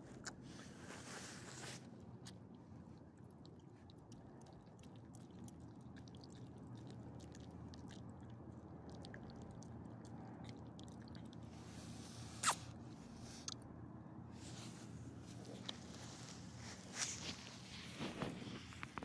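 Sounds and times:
dog licking and chewing: 2.1s - 11.8s.

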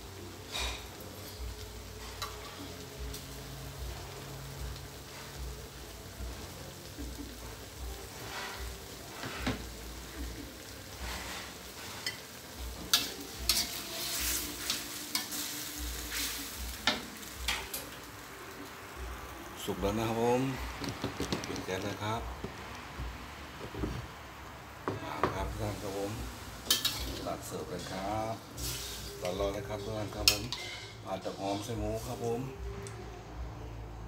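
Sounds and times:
food sizzling in a wok: 0.0s - 34.0s
spatula scraping and knocking wok: 10.9s - 17.9s, 24.8s - 32.1s.

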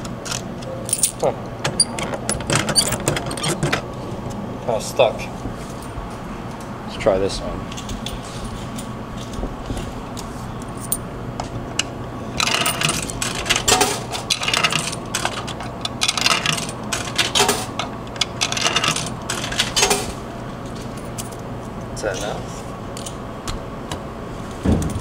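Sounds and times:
coins clinking into vending machine: 0.3s - 3.8s, 12.4s - 20.1s.

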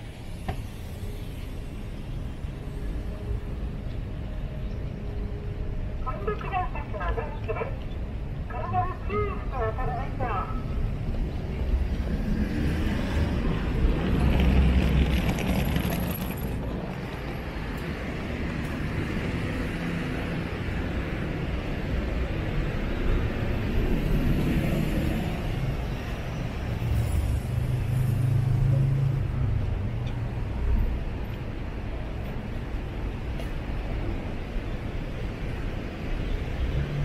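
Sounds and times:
traffic background rumble: 0.0s - 37.0s
cars passing: 5.0s - 37.0s.

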